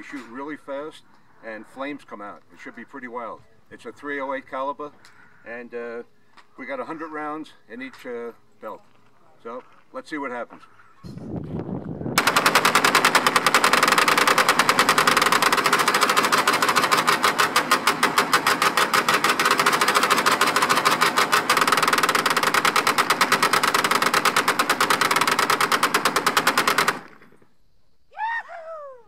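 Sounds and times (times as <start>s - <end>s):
machine guns firing rapid bursts: 12.2s - 27.4s.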